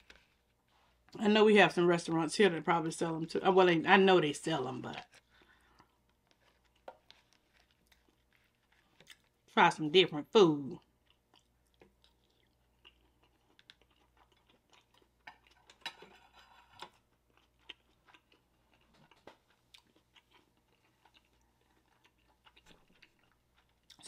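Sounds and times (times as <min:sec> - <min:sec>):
chewing food: 0:04.6 - 0:09.6, 0:10.7 - 0:24.0.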